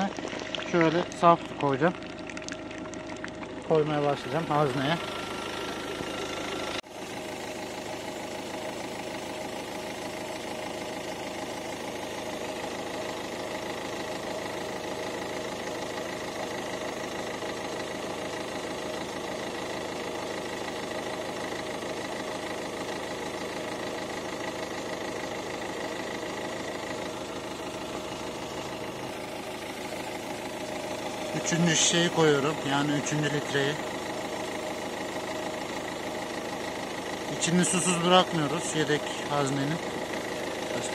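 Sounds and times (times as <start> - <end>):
diesel engine idling: 0.0 - 40.9.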